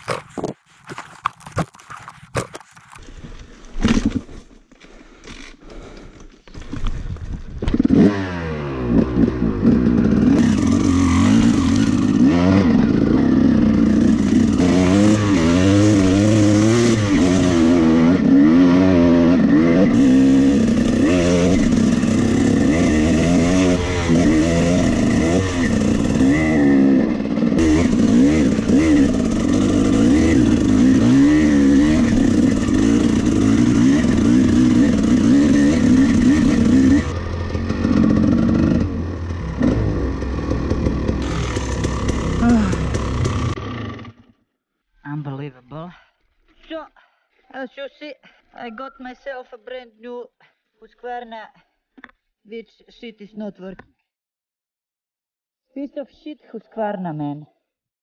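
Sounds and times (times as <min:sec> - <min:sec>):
dirt bike engine revving: 0:07.7 - 0:44.4.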